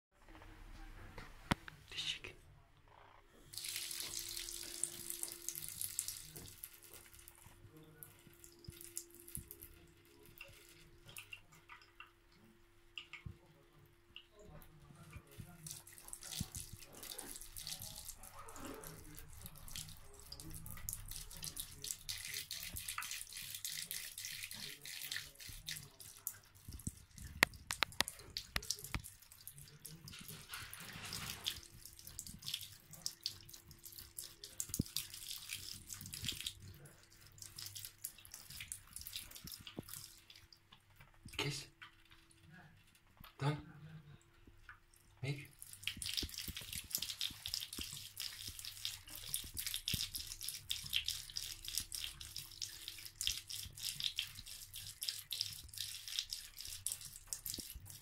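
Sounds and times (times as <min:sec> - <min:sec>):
small drips and clicks: 0:01.2 - 0:58.0
cat lapping water: 0:03.4 - 0:58.0
water stream splashing into tub: 0:03.5 - 0:07.5, 0:15.0 - 0:40.6, 0:45.5 - 0:58.0.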